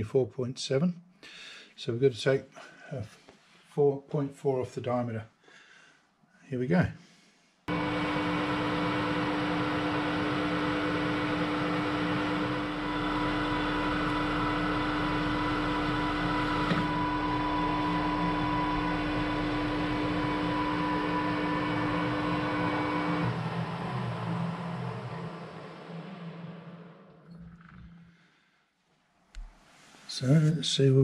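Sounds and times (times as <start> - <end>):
metal lathe whining: 7.7 - 27.9.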